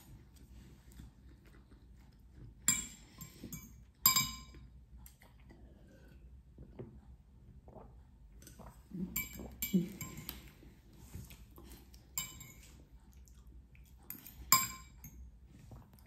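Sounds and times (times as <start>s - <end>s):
cutlery clinking on dish: 2.7s - 4.6s, 14.1s - 15.2s.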